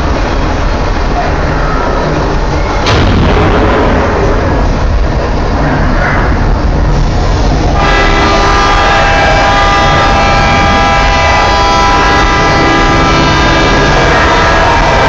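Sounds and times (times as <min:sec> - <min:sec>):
low rumble: 0:00.0 - 0:15.0
loud horn blast: 0:07.6 - 0:15.0.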